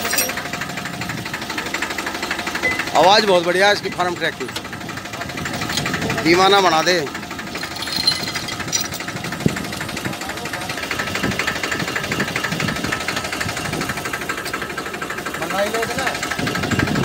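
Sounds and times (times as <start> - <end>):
tractor diesel engine idling: 0.0 - 17.0.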